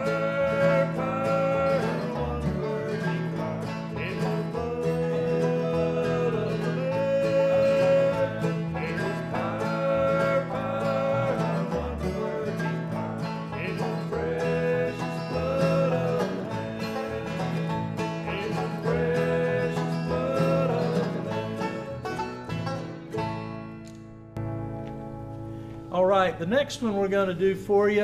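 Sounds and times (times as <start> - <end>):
men singing in harmony: 0.0 - 21.9
banjo: 0.0 - 25.0
mandolin: 0.0 - 26.8
acoustic guitar: 0.0 - 28.0
upright bass: 0.0 - 28.0.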